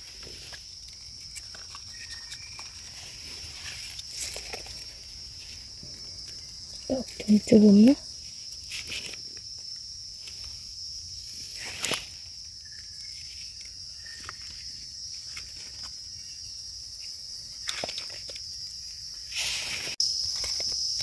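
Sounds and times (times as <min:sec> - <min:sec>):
leaf litter crunching: 0:00.0 - 0:09.5
high-pitched insect drone: 0:00.0 - 0:21.0.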